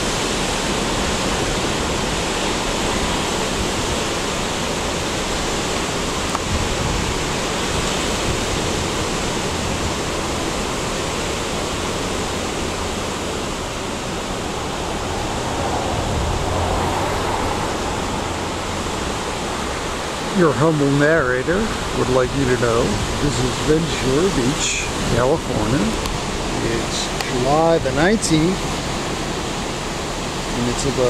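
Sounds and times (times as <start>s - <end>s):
ocean surf breaking: 0.0s - 31.0s.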